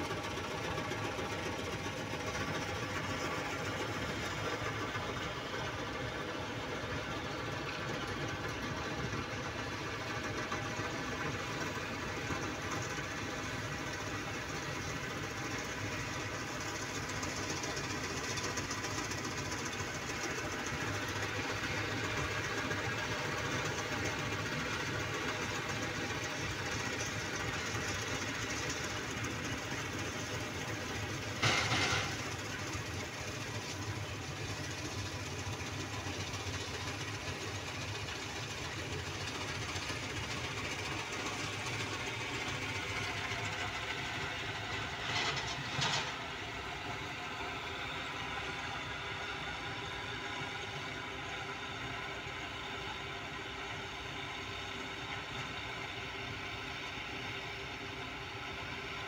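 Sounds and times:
tractor diesel engine chugging: 0:00.0 - 0:59.0.

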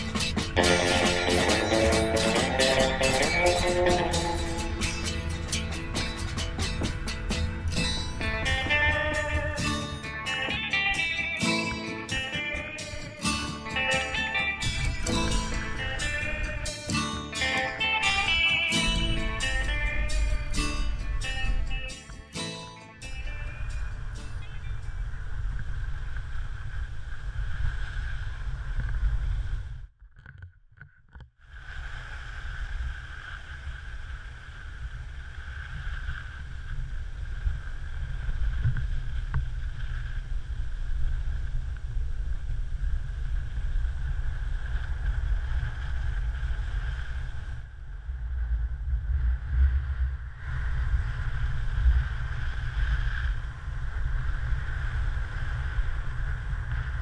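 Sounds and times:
wind rumbling on microphone: 0:00.0 - 0:22.4, 0:23.0 - 0:57.0
skis hissing and scraping on snow: 0:25.0 - 0:29.7, 0:31.5 - 0:47.6, 0:49.9 - 0:57.0.

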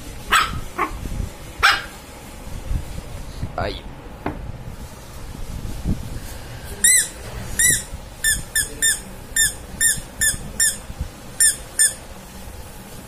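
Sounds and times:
squeaky dog toy squeaking: 0:06.8 - 0:10.8, 0:11.4 - 0:12.0.

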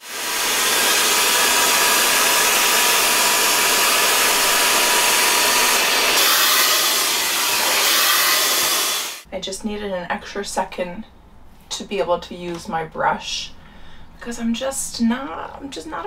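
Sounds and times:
motor whine: 0:00.0 - 0:09.2
hair dryer blowing air: 0:00.0 - 0:09.3.

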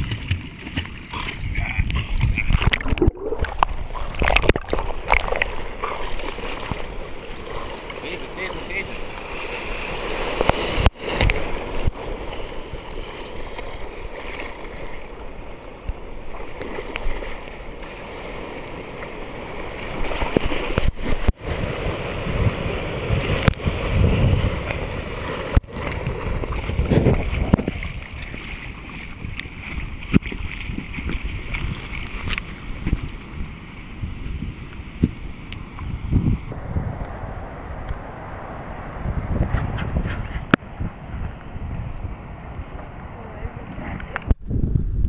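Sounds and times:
dogs swimming and splashing: 0:00.0 - 0:15.4, 0:16.3 - 0:33.3
sea water sloshing and waves splashing: 0:00.0 - 0:44.4.

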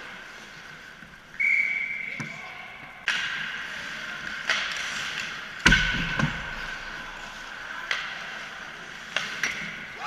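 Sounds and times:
hockey sticks clacking on puck: 0:02.1 - 0:10.0.

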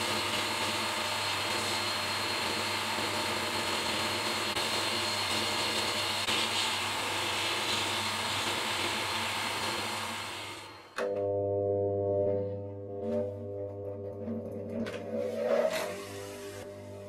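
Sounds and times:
sandblaster hissing: 0:15.8 - 0:17.0.

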